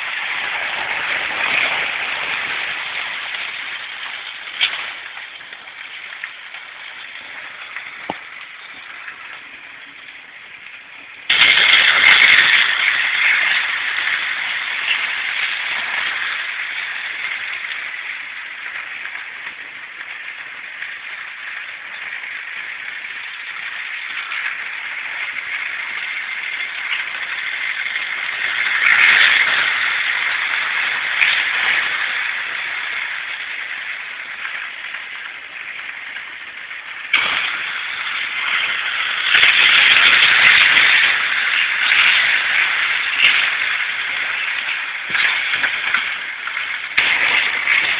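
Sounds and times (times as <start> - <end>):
model trains whirring and rattling: 10.2 - 47.9.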